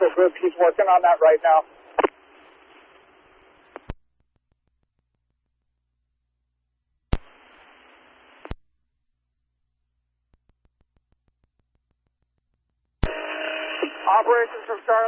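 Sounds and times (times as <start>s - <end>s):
radio static hiss: 0.0s - 3.9s, 7.1s - 8.6s, 13.0s - 15.0s.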